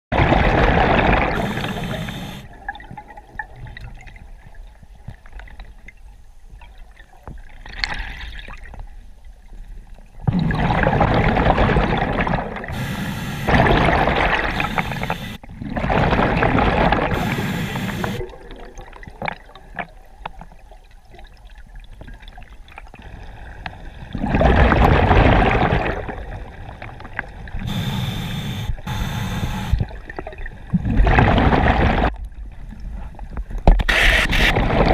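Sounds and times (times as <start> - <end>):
bubbly exhaled air gurgling: 0.1 - 4.5, 10.2 - 12.8, 13.4 - 20.1, 22.9 - 28.9, 29.5 - 32.2, 34.0 - 34.9
inhalation hisses: 1.4 - 2.4, 12.7 - 13.5, 14.5 - 15.4, 17.1 - 18.2, 27.6 - 29.8.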